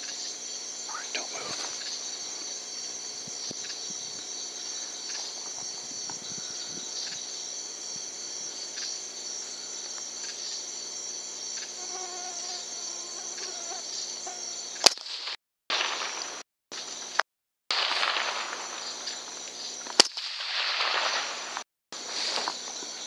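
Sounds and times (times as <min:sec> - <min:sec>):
crickets trilling: 0:00.0 - 0:23.0
faint ticks and rustles: 0:00.9 - 0:09.0.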